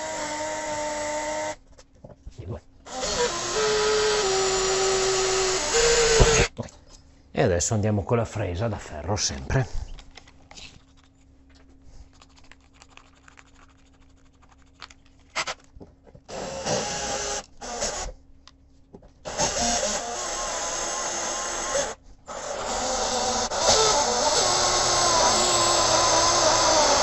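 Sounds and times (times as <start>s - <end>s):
drill hole saw grinding: 0.0s - 1.6s, 2.9s - 6.5s, 16.3s - 18.1s, 19.3s - 27.0s.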